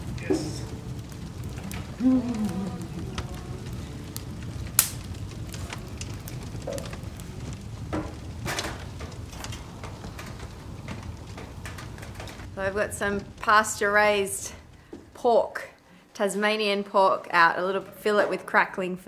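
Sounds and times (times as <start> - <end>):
knocks of wood fed onto fire: 0.0 - 15.2
sharp pops from fire: 0.0 - 15.2
wood fire crackling: 0.0 - 18.8.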